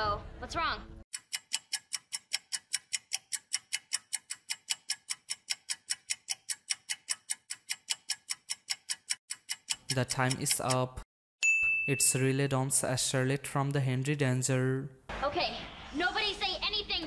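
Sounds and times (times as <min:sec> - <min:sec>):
fast timer ticking: 0:01.1 - 0:11.0.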